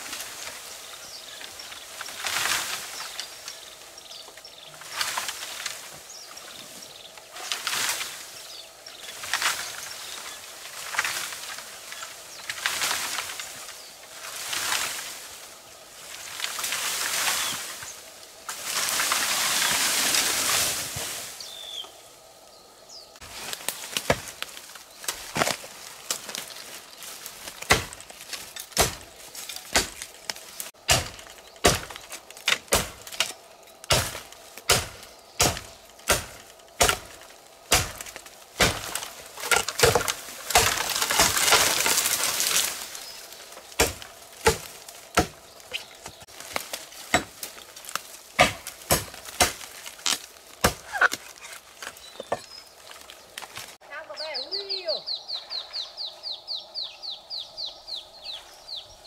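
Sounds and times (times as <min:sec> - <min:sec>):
rustling: 0:00.0 - 0:22.0, 0:23.1 - 0:54.8
machete chopping bamboo: 0:23.6 - 0:26.4, 0:27.4 - 0:42.7, 0:43.7 - 0:52.4.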